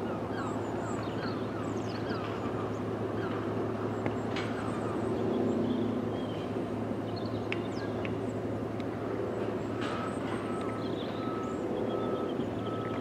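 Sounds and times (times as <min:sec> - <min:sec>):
jet engines idling hum: 0:00.0 - 0:13.0
small birds chirping: 0:09.6 - 0:13.0.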